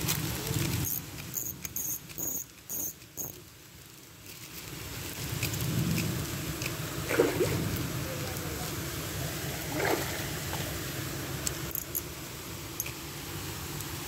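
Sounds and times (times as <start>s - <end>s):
fishing reel drag buzzing: 0.8s - 3.4s.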